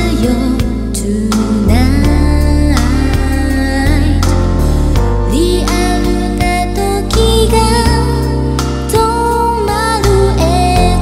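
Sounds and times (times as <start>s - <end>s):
pop song with heavy bass: 0.0s - 11.0s.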